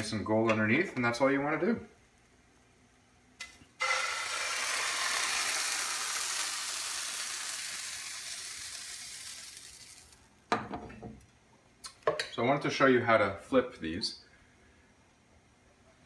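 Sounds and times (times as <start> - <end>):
batter sizzling in a pan: 3.8 - 10.4.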